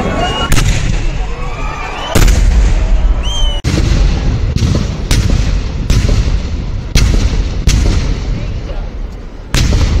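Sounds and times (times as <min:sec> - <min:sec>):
rumble of explosions: 0:00.0 - 0:10.0
rising firework whistle: 0:00.2 - 0:03.7
fireworks bangs: 0:00.4 - 0:10.0.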